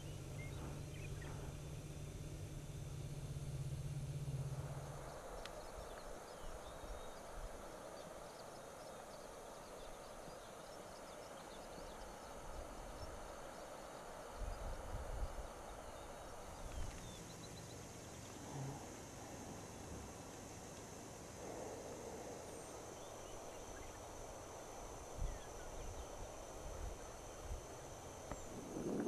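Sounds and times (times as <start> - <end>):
steady soft hiss: 0.0 - 29.0.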